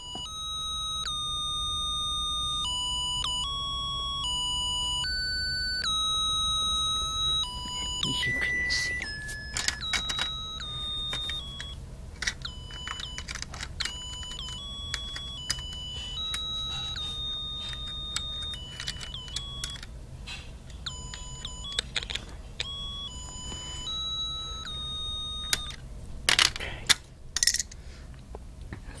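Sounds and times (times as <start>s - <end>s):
electronic beeping tune: 0.0s - 11.8s, 12.5s - 19.8s, 22.6s - 25.8s.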